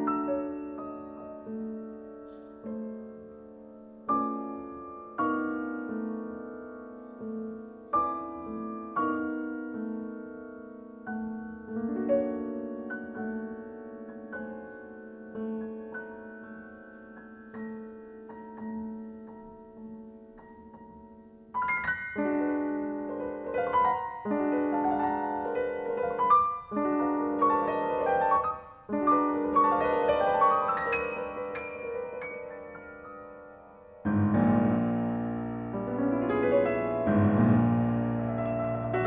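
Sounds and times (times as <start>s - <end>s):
solo piano chords: 0.0s - 39.0s.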